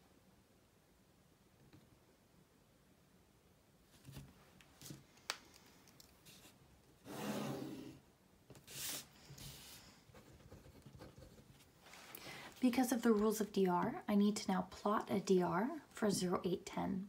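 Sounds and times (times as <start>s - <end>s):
pen rubbing stroke on paper: 8.6s - 10.7s.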